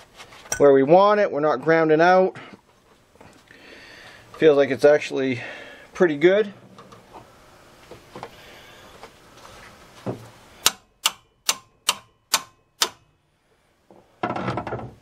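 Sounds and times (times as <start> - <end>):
hammer striking metal nut: 10.6 - 13.1.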